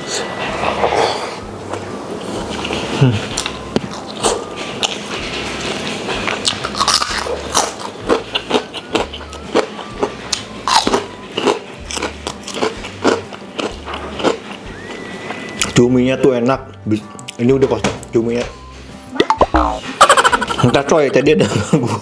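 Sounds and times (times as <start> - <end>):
person chewing food: 6.2 - 15.8.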